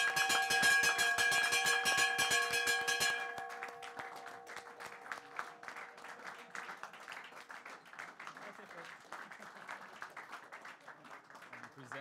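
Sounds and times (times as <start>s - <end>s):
brass bell ringing: 0.0s - 5.6s
applause: 0.0s - 12.0s.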